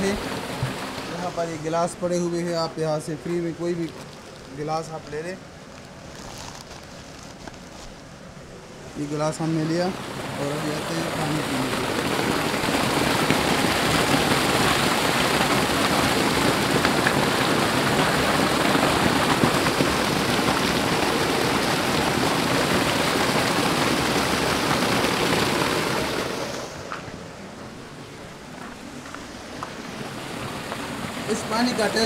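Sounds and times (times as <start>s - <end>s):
water pouring from a spout: 10.0s - 26.4s.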